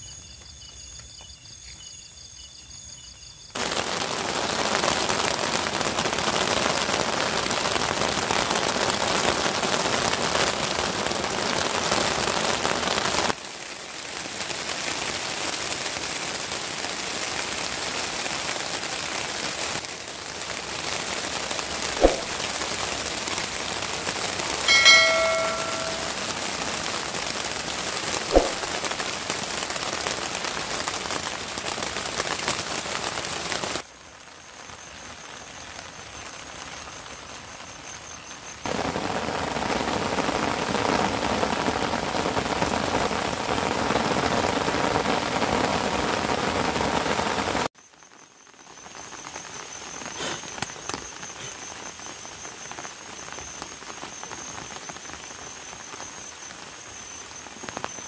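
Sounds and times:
steady rain falling: 0:02.6 - 0:58.0
brief ringing tone: 0:24.7 - 0:26.3.

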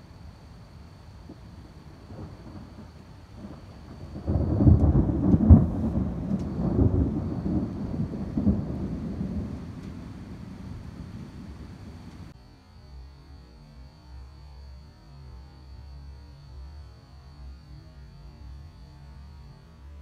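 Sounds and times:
thunder rumbling: 0:00.0 - 0:12.3.

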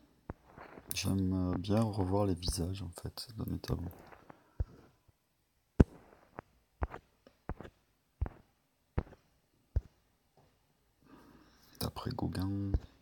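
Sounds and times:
fingertip taps on touchscreen: 0:05.8 - 0:09.2, 0:09.8 - 0:10.0.

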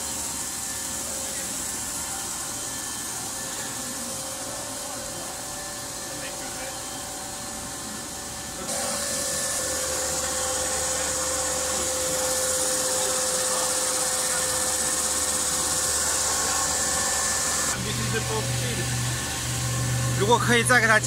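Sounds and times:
slitting machine running: 0:00.0 - 0:21.0
high hiss of film and rollers: 0:08.7 - 0:18.8.

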